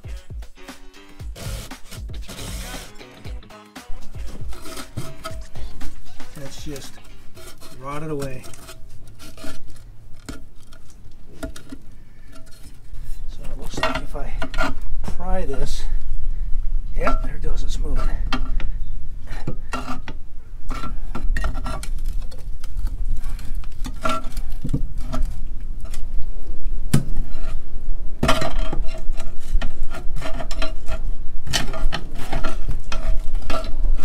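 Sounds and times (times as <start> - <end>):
metallic clinks and scrapes: 4.1 - 15.9, 28.2 - 34.0.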